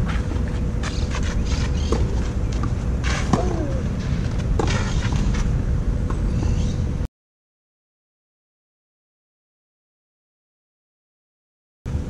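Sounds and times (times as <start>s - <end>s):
steady low rumble: 0.0s - 7.1s.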